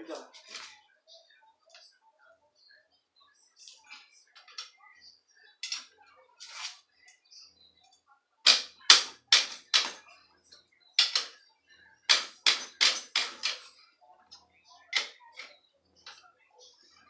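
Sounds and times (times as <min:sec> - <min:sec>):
wrench clicking and scraping on metal: 0:11.0 - 0:11.3, 0:12.1 - 0:13.7.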